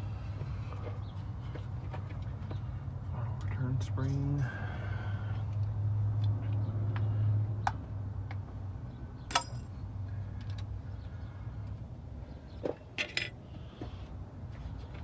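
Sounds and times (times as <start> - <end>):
metal tool clicking and clinking: 9.3 - 9.7.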